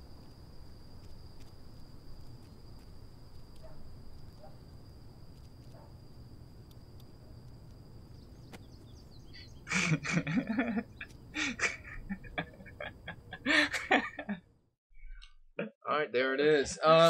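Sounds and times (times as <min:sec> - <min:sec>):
people laughing: 0:09.7 - 0:14.4.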